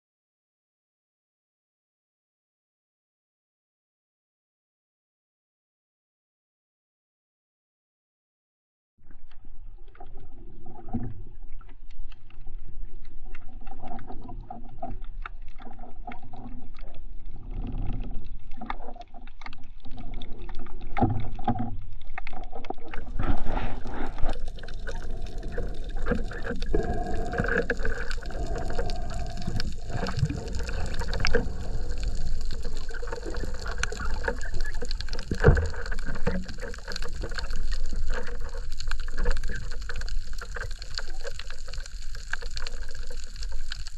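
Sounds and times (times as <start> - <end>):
water sloshing underwater: 9.0 - 43.9.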